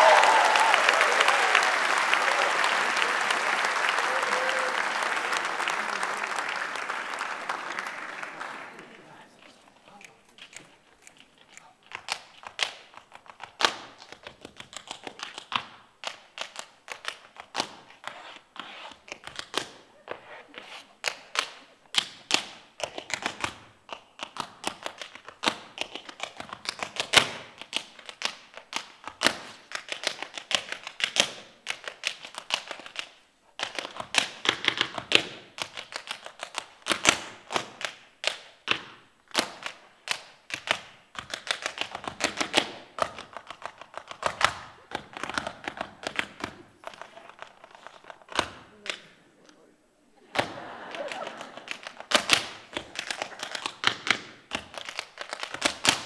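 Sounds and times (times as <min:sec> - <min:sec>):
tap shoes on stage floor: 0:11.8 - 0:49.2, 0:50.3 - 0:56.0.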